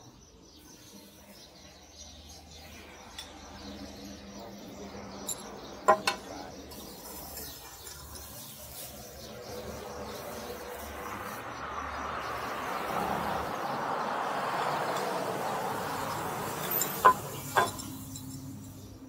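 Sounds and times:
sharp knocks: 5.9s - 6.3s
vehicle passing on road: 8.1s - 19.0s.

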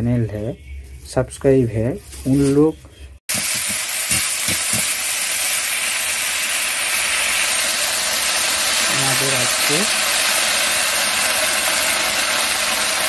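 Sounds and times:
greens sizzling in hot oil: 3.3s - 13.0s.

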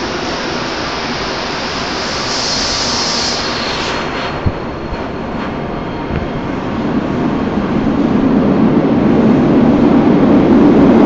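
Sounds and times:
subway train rushing: 0.0s - 11.0s
brief hiss: 1.8s - 4.4s.

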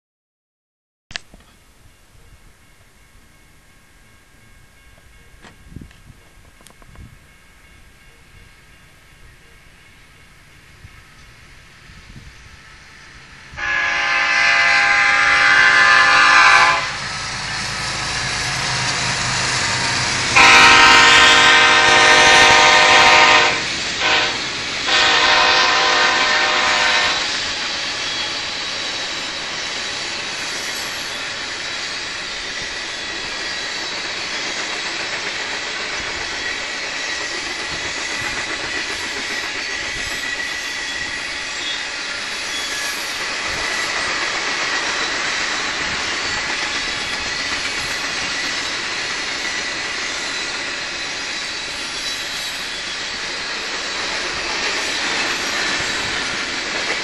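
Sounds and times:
freight cars rumbling on rails: 4.7s - 57.0s
locomotive air horn blasts: 13.5s - 27.3s.

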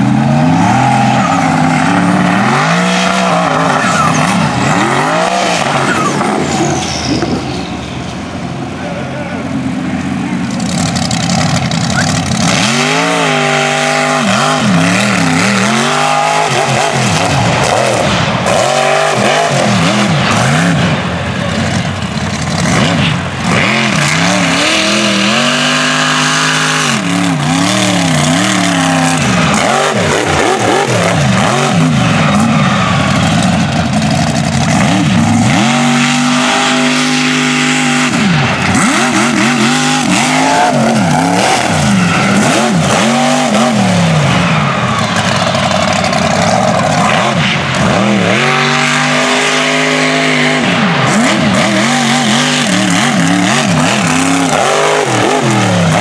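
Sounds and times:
truck engine revving: 0.0s - 56.0s.

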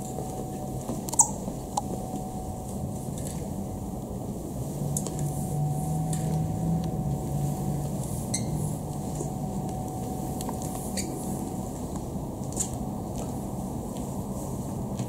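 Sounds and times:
steady low hum: 0.0s - 15.0s
light clicks and squeaks: 1.0s - 2.0s, 8.3s - 8.6s.

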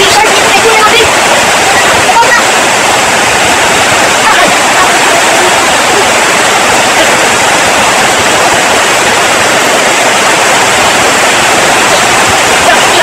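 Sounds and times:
loud rushing noise: 0.0s - 13.0s.

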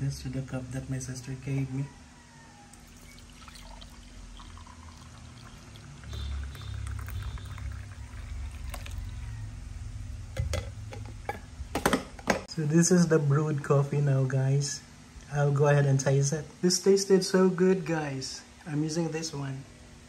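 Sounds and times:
coffee pouring into a mug: 2.7s - 9.5s.

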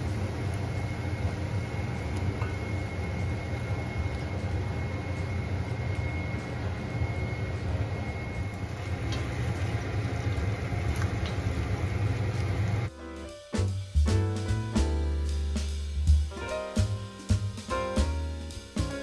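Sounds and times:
faint high whine: 0.0s - 13.8s.

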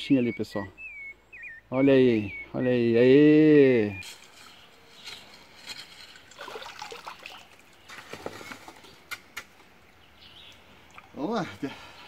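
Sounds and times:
water sloshing: 6.1s - 9.0s.

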